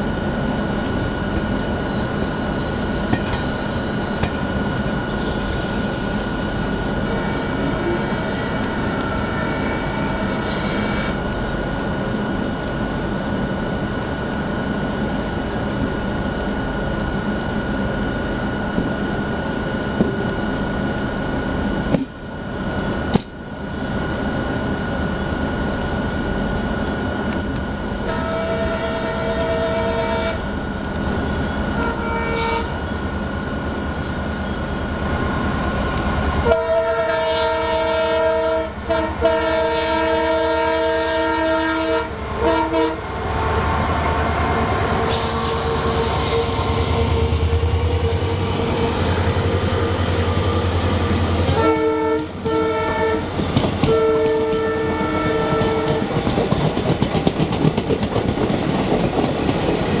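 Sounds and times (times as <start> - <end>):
locomotive horn blasts: 7.1 - 11.3, 28.0 - 30.4, 31.8 - 32.8, 36.4 - 43.1, 44.9 - 47.3, 51.5 - 56.2
train wheels clattering over rails: 53.3 - 60.0.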